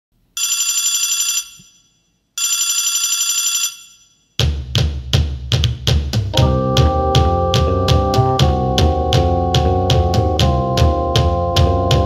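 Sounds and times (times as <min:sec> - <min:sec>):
telephone ringing: 0:00.4 - 0:04.2
drum-led music: 0:04.4 - 0:12.0.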